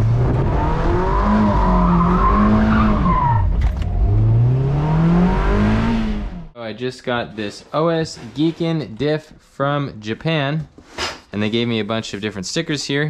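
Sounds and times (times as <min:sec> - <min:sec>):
car engine revving: 0:00.0 - 0:06.6.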